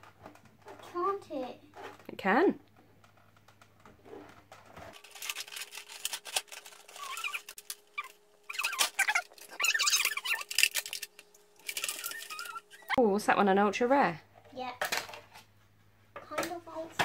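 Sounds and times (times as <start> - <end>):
plastic bag crinkling: 4.8 - 13.0.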